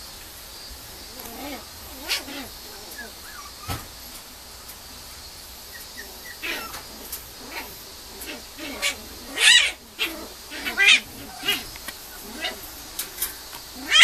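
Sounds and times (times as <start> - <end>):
puppy whining and yelping: 1.3 - 3.7.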